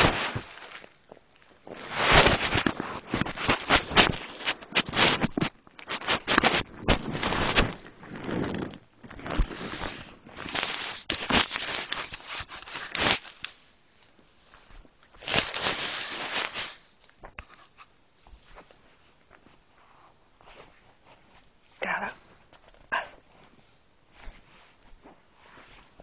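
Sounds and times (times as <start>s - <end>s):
phone rubbing against fabric: 1.8s - 8.8s.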